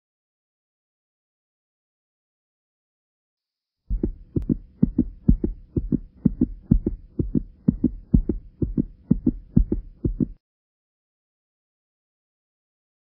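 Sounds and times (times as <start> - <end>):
faint steady hum: 3.9 - 10.4
heartbeat thumps: 3.9 - 10.4.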